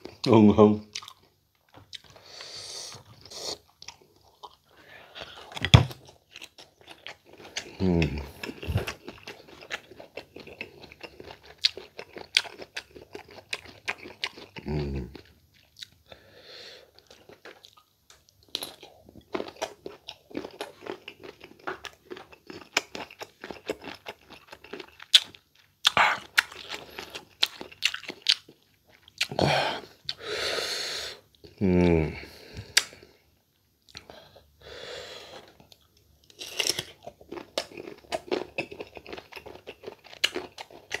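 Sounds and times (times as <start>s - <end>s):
crunching and chewing: 0.0s - 16.2s, 16.9s - 30.2s, 35.2s - 41.0s
person humming: 7.8s - 8.9s, 31.6s - 32.3s
breathy sound: 29.3s - 31.2s.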